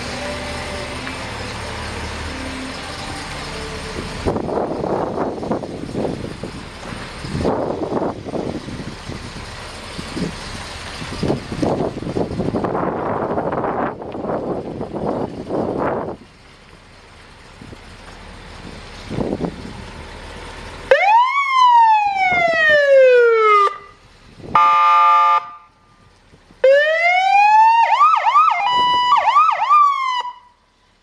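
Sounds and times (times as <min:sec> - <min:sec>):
fire truck electronic siren: 0:20.9 - 0:25.8, 0:26.6 - 0:30.6.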